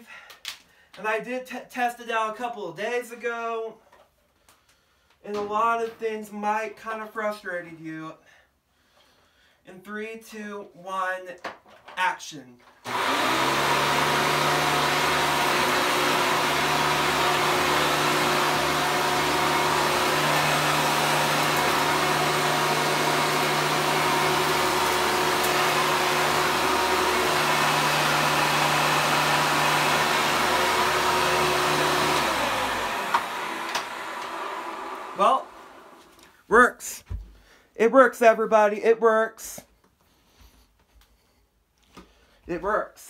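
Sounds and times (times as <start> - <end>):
vacuum motor spinning down: 12.9 - 36.1
vacuum cleaner running: 12.9 - 36.2.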